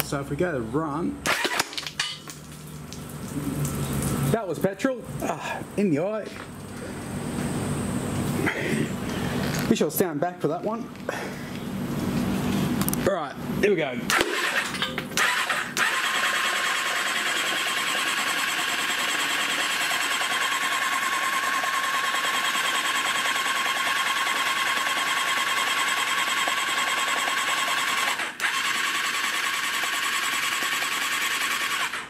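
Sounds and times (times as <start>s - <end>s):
engine cranking on starter: 1.2s - 1.8s, 14.1s - 32.0s.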